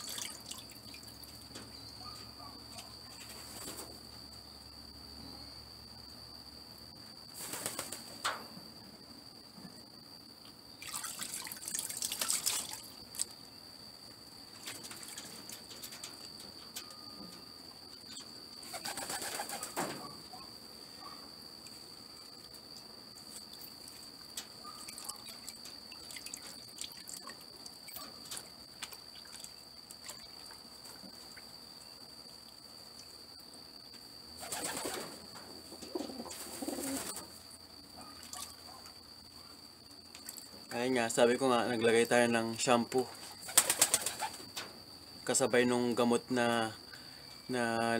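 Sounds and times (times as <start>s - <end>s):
water splashing in a bucket: 0.0s - 1.2s, 10.8s - 13.3s, 24.9s - 28.0s
water dripping and trickling: 0.0s - 1.6s, 10.8s - 13.3s, 23.5s - 30.7s.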